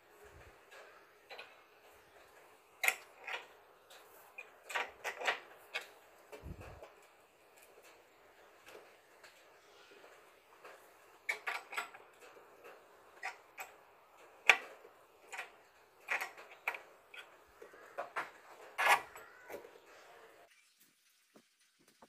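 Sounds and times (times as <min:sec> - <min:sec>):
metal and plastic parts clicking: 0:00.2 - 0:08.0, 0:10.6 - 0:19.8.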